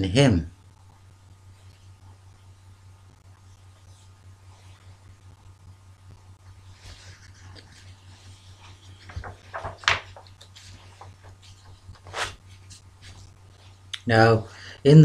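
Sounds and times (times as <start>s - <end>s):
low electrical hum: 0.0s - 15.0s
brief rustling: 8.6s - 13.3s.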